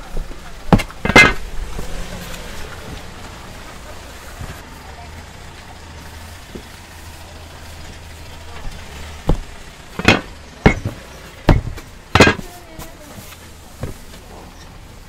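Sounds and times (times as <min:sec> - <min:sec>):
sharp knocks: 0:00.7 - 0:01.5, 0:08.6 - 0:12.5.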